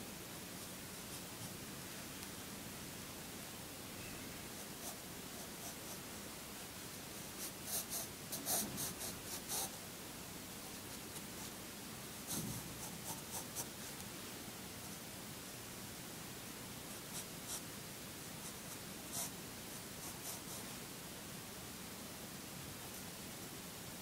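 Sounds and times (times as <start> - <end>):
faint hiss: 0.0 - 24.0
pencil sketching on paper: 4.6 - 6.0, 7.4 - 9.7.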